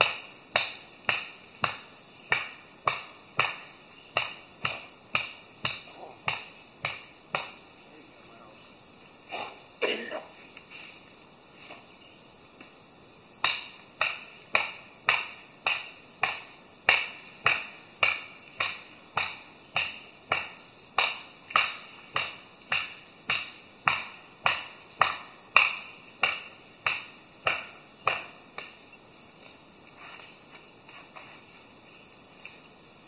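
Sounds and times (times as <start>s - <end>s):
chopping strikes on wood: 0.0s - 7.6s, 13.4s - 28.7s.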